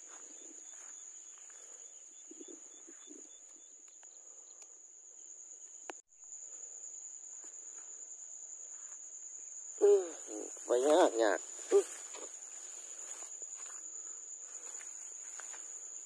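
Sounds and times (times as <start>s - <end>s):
footsteps rustling through grass: 0.0s - 1.9s, 10.2s - 16.0s
insect trill: 0.0s - 16.0s.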